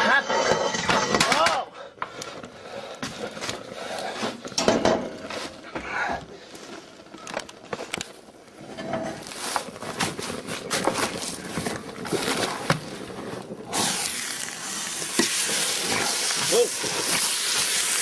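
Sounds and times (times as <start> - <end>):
clattering and knocks: 0.0 - 1.6, 4.5 - 5.2
hot pan sizzling in snow: 8.1 - 18.0.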